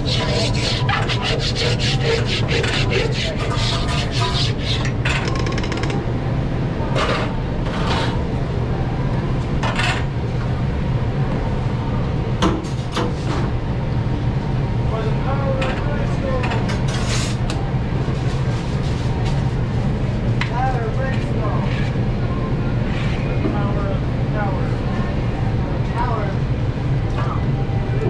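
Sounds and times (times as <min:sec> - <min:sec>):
grill scraper on steel plate: 0:00.0 - 0:05.0
low kitchen hum: 0:00.0 - 0:28.0.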